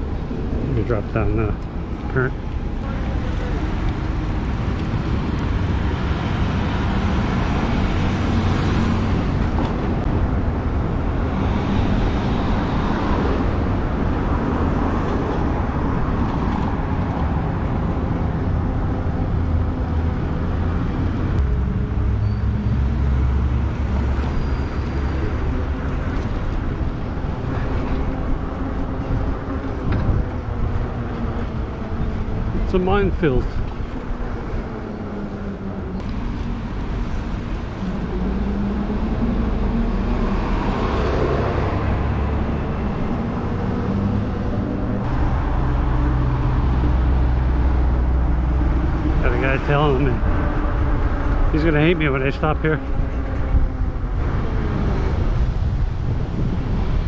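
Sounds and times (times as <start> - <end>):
bike road rumble: 0.0 - 57.0
passing cars: 0.0 - 57.0
wind noise: 20.2 - 57.0.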